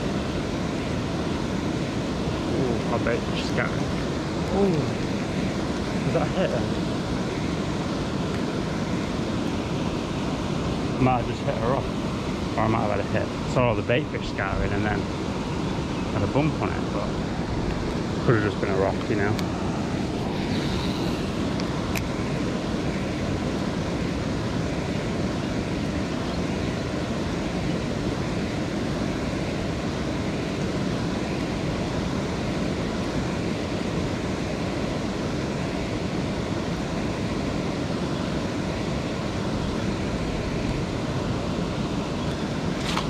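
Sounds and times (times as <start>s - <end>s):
water rushing over weir: 0.0s - 43.0s.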